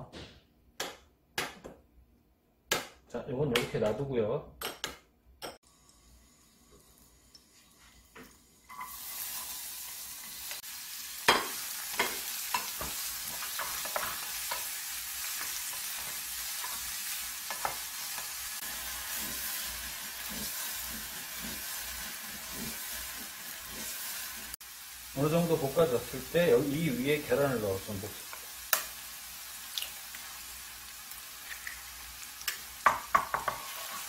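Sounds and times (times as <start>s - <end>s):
vegetables sizzling in oil: 5.6s - 34.0s
spatula scraping a pan: 11.5s - 24.6s, 33.2s - 34.0s.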